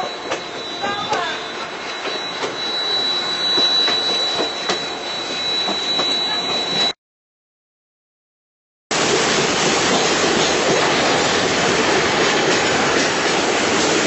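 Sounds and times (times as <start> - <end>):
train rumbling: 0.0 - 6.9, 8.9 - 14.0
steady high whine: 0.0 - 7.0.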